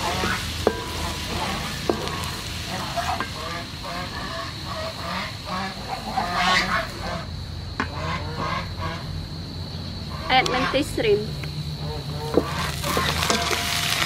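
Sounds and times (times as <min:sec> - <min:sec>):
spatula tapping metal wok: 0:00.0 - 0:03.5
garlic sizzling in hot oil: 0:00.0 - 0:07.2, 0:11.7 - 0:14.0
duck-like honking calls: 0:02.7 - 0:07.2, 0:07.9 - 0:09.0.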